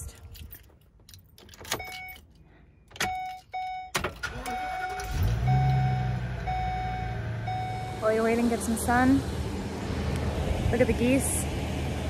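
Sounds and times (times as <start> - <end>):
engine cranking and idling: 3.9 - 10.2.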